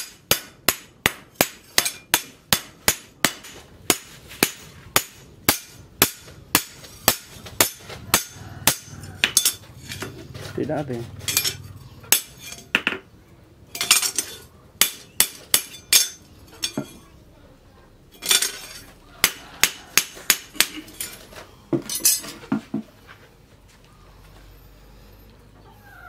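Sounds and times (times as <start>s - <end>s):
steel clinking on steel: 7.6s - 10.1s, 11.2s - 12.7s, 13.7s - 17.2s, 18.1s - 18.9s, 20.5s - 21.2s, 21.8s - 22.4s.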